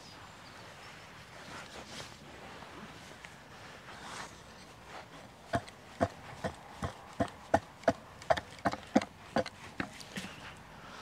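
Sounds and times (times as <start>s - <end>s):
rapid sharp knocks: 5.5s - 9.9s.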